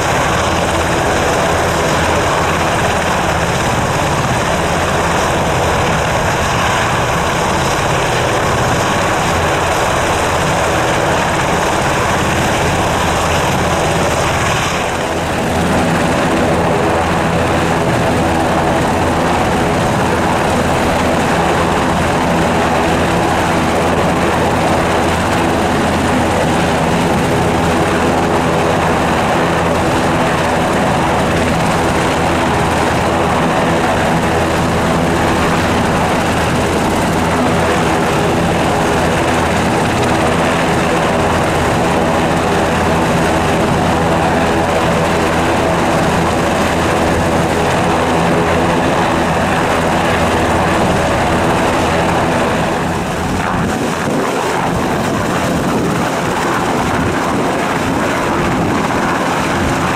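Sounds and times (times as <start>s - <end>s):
helicopter engines and rotor running: 0.0s - 59.9s.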